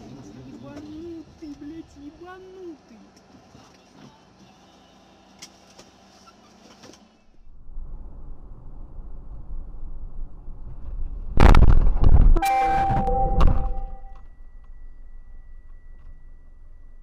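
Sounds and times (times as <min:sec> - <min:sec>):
road and engine noise: 0:00.0 - 0:12.1
faint high beep: 0:12.4 - 0:17.0
ringing tones: 0:12.4 - 0:17.0.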